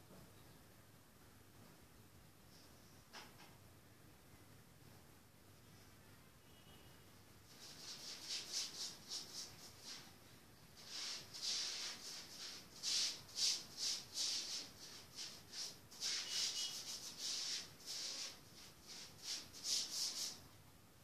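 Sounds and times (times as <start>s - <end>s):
hissy scratching strokes: 7.5s - 20.4s.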